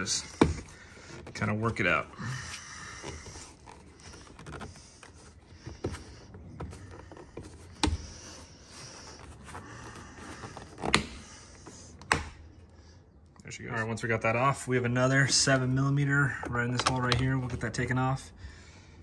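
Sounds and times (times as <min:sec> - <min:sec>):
plastic rubbing and scraping: 0:00.0 - 0:12.4.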